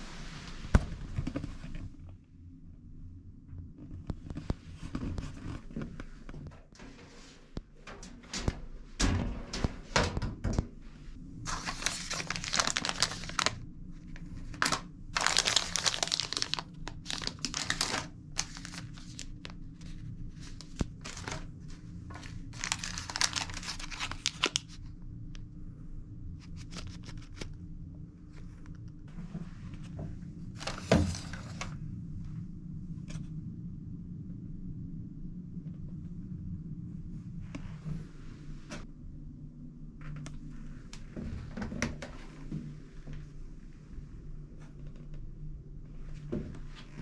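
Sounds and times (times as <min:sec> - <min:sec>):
steady low hum: 0:00.0 - 0:47.0
wrappers rustling and crinkling: 0:11.4 - 0:24.8.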